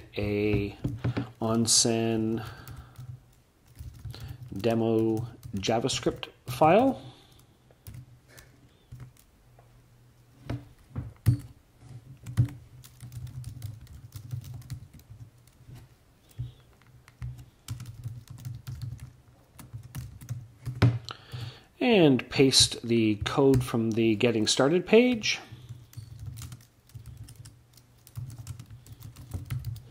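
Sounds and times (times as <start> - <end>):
typing on computer keyboard: 2.4 - 6.2, 12.2 - 15.6, 16.2 - 21.5, 25.5 - 29.9.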